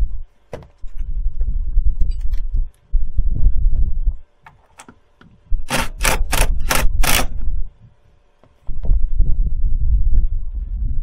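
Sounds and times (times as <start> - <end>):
cordless drill driving a screw: 5.6 - 7.4.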